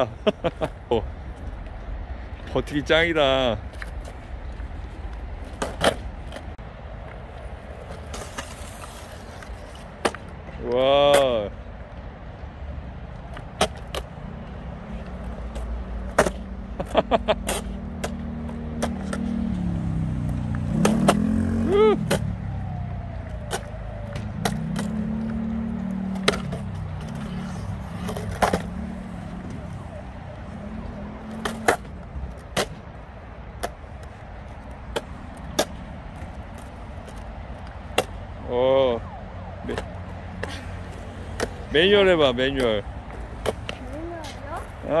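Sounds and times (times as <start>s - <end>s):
skateboard wheels rumbling: 0.0s - 10.7s, 13.1s - 38.2s, 39.8s - 45.0s
skateboard clicks and knocks: 3.5s - 12.0s, 13.1s - 19.4s, 23.2s - 38.2s, 39.7s - 41.8s, 42.5s - 44.8s.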